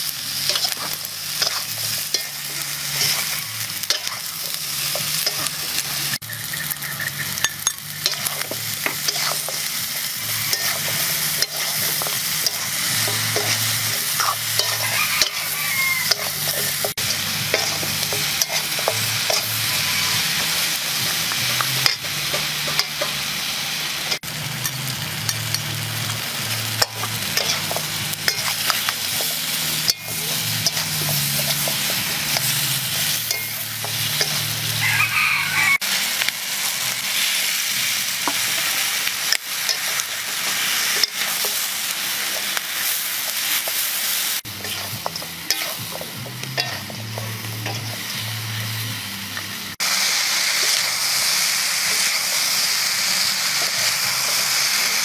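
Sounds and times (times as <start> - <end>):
chicken feet sizzling in a wok: 0.0 - 55.0
metal spatula scraping a pan: 0.4 - 23.2, 26.4 - 34.8, 38.2 - 41.7, 44.5 - 48.2.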